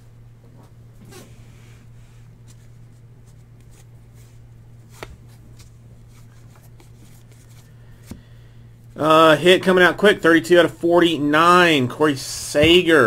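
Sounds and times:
low steady hum: 0:00.0 - 0:13.0
trading cards sliding and tapping: 0:02.4 - 0:08.3.

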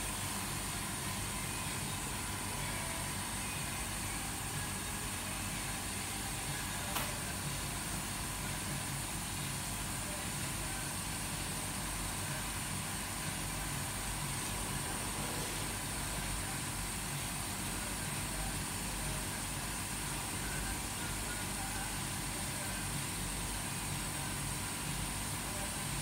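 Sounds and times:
workshop machinery hum: 0:00.0 - 0:26.0.

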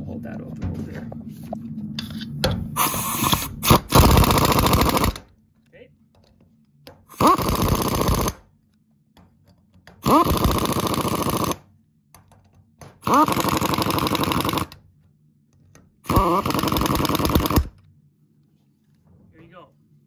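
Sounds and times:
impact wrench hammering: 0:06.9 - 0:08.4, 0:09.2 - 0:11.6, 0:12.2 - 0:14.8, 0:16.1 - 0:17.7.

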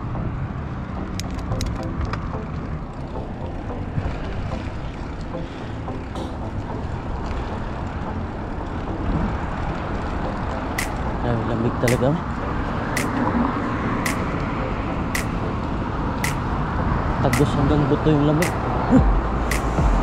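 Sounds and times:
wind rumbling on microphone: 0:00.0 - 0:20.0
sharp click: 0:10.8 - 0:11.0, 0:13.0 - 0:13.3, 0:14.1 - 0:14.4, 0:15.2 - 0:15.4, 0:19.5 - 0:19.8.

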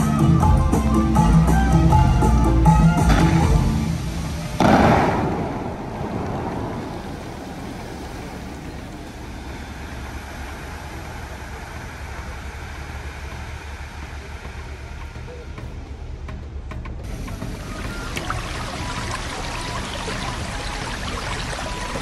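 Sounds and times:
fountain water jets rushing: 0:02.1 - 0:15.7, 0:17.0 - 0:22.0
falling water and spray: 0:02.9 - 0:15.2, 0:17.0 - 0:22.0.

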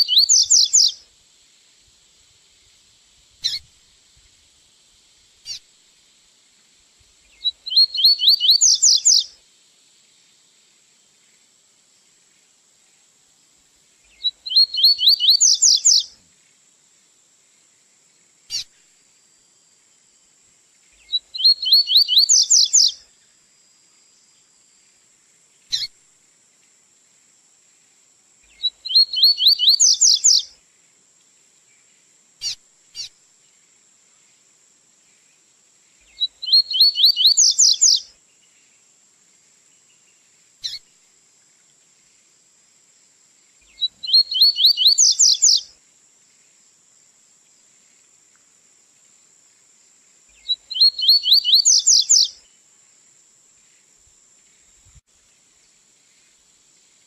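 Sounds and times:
bird song of high repeated notes: 0:00.0 - 0:00.9, 0:07.4 - 0:09.3, 0:14.2 - 0:16.1, 0:21.1 - 0:23.0, 0:28.5 - 0:30.5, 0:36.1 - 0:38.0, 0:43.7 - 0:45.6, 0:50.4 - 0:52.3
bird chirps: 0:00.0 - 0:01.0, 0:03.4 - 0:03.7, 0:07.3 - 0:09.3, 0:14.1 - 0:16.1, 0:18.5 - 0:18.8, 0:21.0 - 0:23.0, 0:25.7 - 0:25.9, 0:28.5 - 0:30.5, 0:32.4 - 0:33.1, 0:36.1 - 0:38.1, 0:40.0 - 0:40.8, 0:43.6 - 0:45.7, 0:50.4 - 0:52.4.

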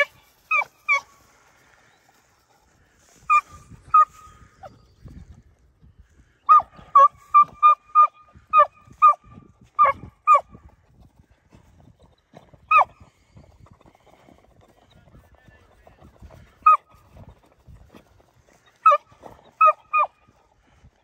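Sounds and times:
hounds barking: 0:00.0 - 0:01.2, 0:03.3 - 0:04.3, 0:06.5 - 0:10.5, 0:12.7 - 0:13.0, 0:16.6 - 0:17.0, 0:18.7 - 0:20.4.

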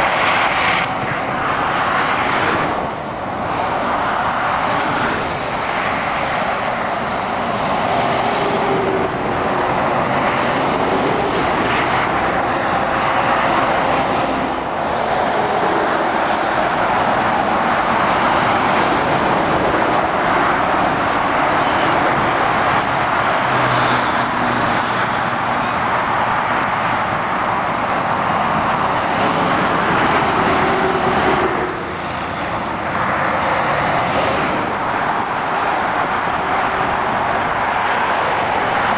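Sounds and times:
truck engines running: 0:00.0 - 0:38.9
tyre noise on road: 0:00.0 - 0:38.9.

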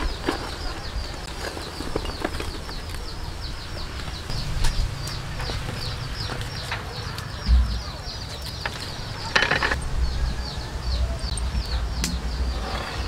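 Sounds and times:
bird chirping: 0:00.0 - 0:13.0
low knock: 0:07.5 - 0:07.8.

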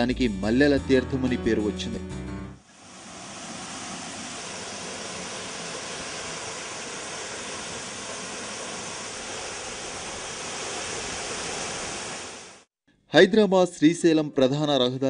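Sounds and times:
waterfall rushing: 0:02.7 - 0:12.7.

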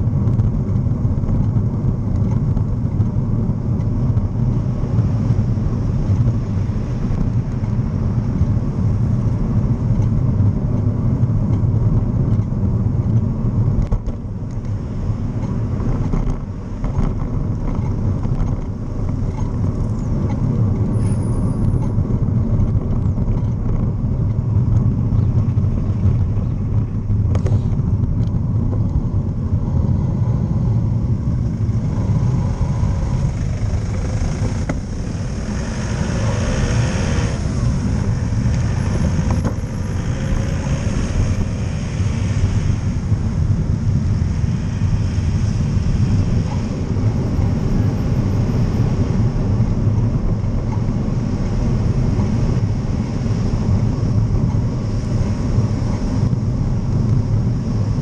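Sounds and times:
road traffic: 0:00.0 - 0:58.0
wind rumble on microphone: 0:00.0 - 0:58.0
vehicle passing close by: 0:29.7 - 0:49.7.

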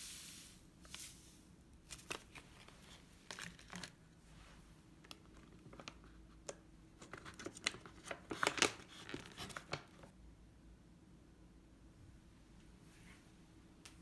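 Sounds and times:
plastic packaging crinkling: 0:01.8 - 0:04.1, 0:05.0 - 0:10.1
plastic pouch ripping: 0:07.1 - 0:10.0.

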